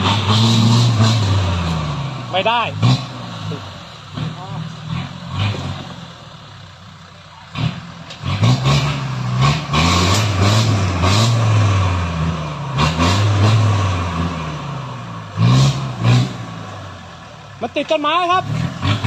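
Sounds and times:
engine revving: 0.0 - 6.5, 7.4 - 19.0.

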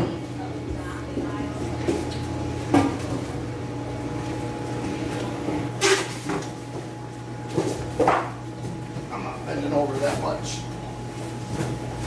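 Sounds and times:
aquarium air pumps humming: 0.0 - 12.0.

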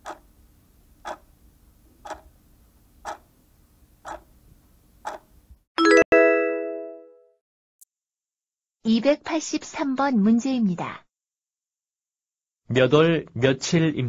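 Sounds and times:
clock-like ticking: 0.0 - 0.2, 1.0 - 1.2, 2.0 - 2.3
bright multi-tone chime: 5.8 - 7.1.

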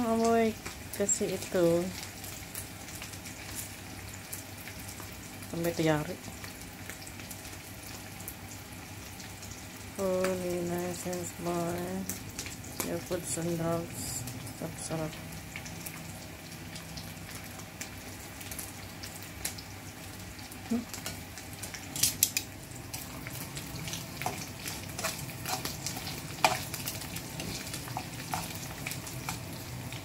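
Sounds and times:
fish sizzling in oil: 0.0 - 30.0.

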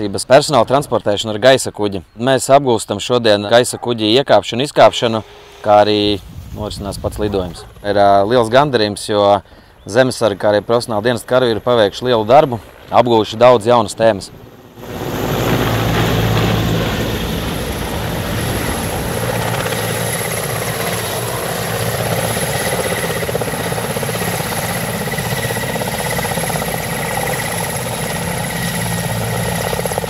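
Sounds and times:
helicopter rotor beating: 4.8 - 8.8, 10.0 - 30.0
high whine: 13.9 - 30.0.

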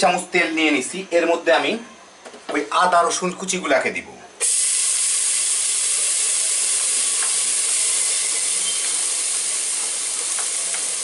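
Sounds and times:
ginger and garlic sizzling in oil: 4.4 - 11.0.

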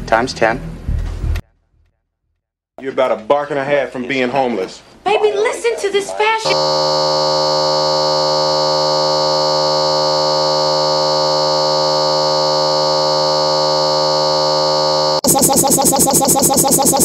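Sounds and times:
electronic buzzing drone: 6.5 - 17.0
fast-pulsing electronic beat: 6.5 - 17.0.

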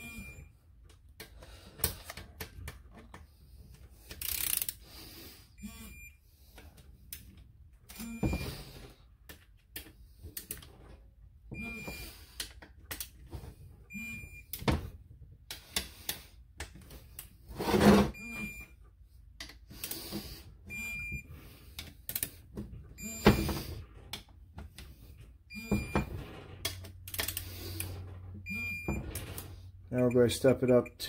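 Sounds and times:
torque wrench beeps: 0.0 - 0.5, 5.6 - 6.2, 7.9 - 8.6, 11.6 - 12.3, 13.9 - 14.6, 18.1 - 18.7, 20.7 - 21.3, 23.0 - 23.6, 25.5 - 26.1, 28.4 - 29.1
wrench ratcheting clicks: 4.1 - 4.8.

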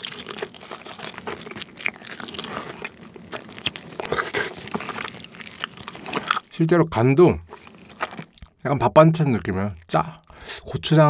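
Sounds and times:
crunchy chewing: 0.0 - 6.5, 7.5 - 8.6.

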